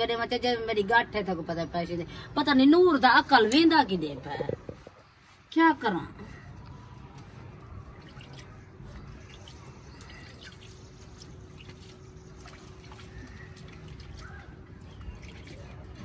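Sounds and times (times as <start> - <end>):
water splashing in steel bowl: 8.0 - 16.0.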